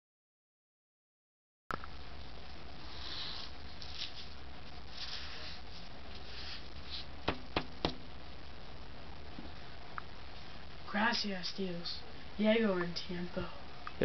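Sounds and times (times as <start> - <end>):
low hum: 1.7 - 14.0
marker pen scratching on paper: 2.9 - 4.3, 4.9 - 7.1
sharp taps: 7.3 - 8.0.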